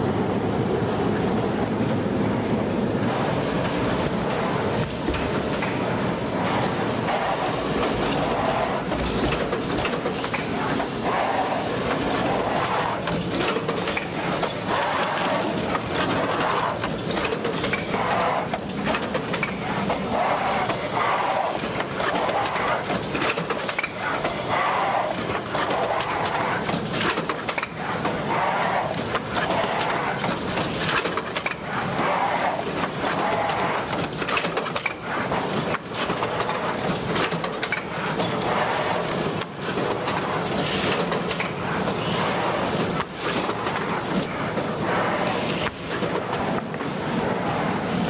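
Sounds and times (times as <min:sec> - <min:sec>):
machine clattering clicks and knocks: 0:04.8 - 0:05.9, 0:07.8 - 0:10.9, 0:11.8 - 0:20.9, 0:21.5 - 0:24.5, 0:25.1 - 0:28.2, 0:28.9 - 0:31.7, 0:32.6 - 0:38.5, 0:39.1 - 0:42.1, 0:42.7 - 0:44.7.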